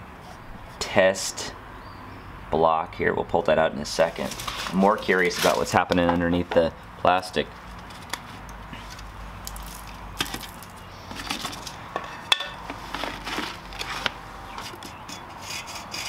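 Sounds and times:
plastic sheeting crinkling: 0:04.0 - 0:05.8.

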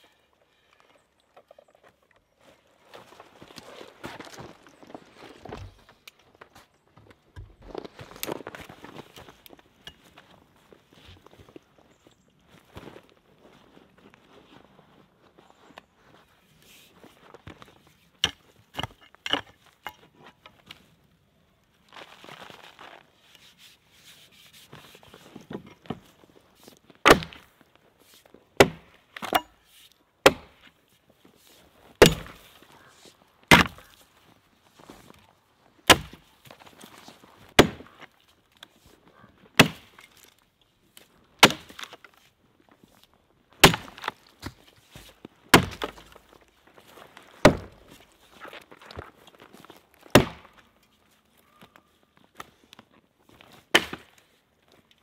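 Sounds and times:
axe chopping wood: 0:27.0 - 0:27.5, 0:28.6 - 0:29.5, 0:30.2 - 0:30.6, 0:32.0 - 0:32.5, 0:33.5 - 0:33.9, 0:35.9 - 0:36.3, 0:37.5 - 0:38.0, 0:39.6 - 0:40.0, 0:41.4 - 0:42.0, 0:43.6 - 0:44.6, 0:45.5 - 0:46.1, 0:47.4 - 0:47.8, 0:50.1 - 0:50.6, 0:53.7 - 0:54.2.

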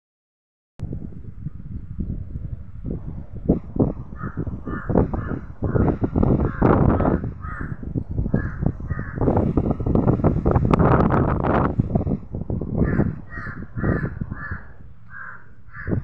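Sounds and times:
loud low rumbling: 0:00.8 - 0:16.0
bird calling: 0:03.8 - 0:09.6, 0:12.7 - 0:16.0.

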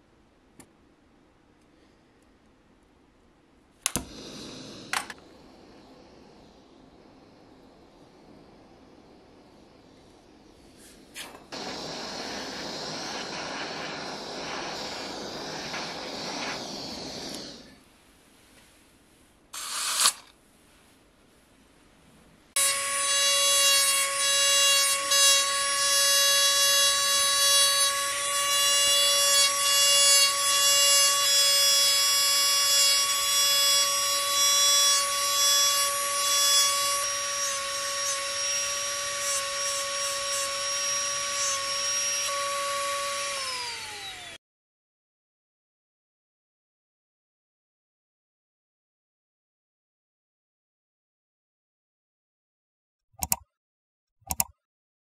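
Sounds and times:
rotary tool whining: 0:03.9 - 0:17.8, 0:25.0 - 0:44.4.

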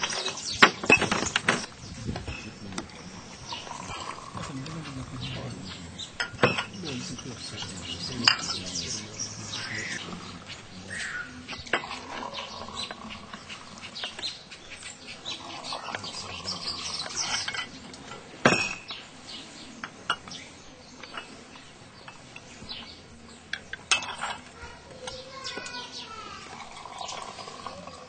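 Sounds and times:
birds chirping: 0:00.0 - 0:28.0
tea pouring: 0:03.5 - 0:05.3
tea glasses clinking: 0:06.1 - 0:10.1, 0:18.4 - 0:19.0.

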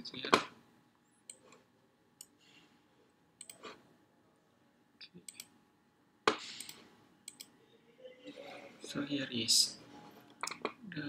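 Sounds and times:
computer mouse clicks: 0:03.4 - 0:03.8, 0:05.3 - 0:05.6, 0:06.3 - 0:07.6.

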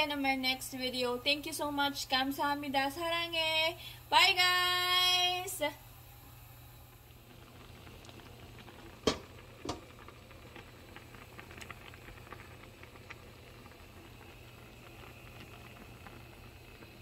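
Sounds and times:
soup boiling and bubbling: 0:05.8 - 0:17.0.

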